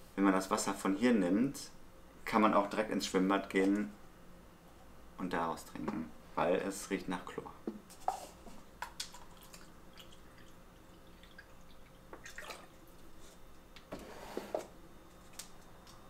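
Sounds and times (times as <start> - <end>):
water splash: 12.2 - 12.8.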